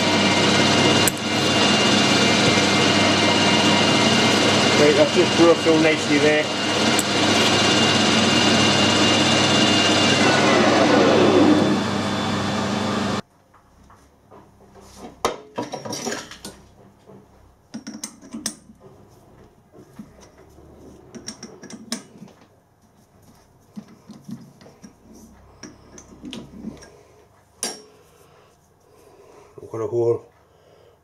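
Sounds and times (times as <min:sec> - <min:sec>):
metal lathe whine: 0:00.0 - 0:13.2.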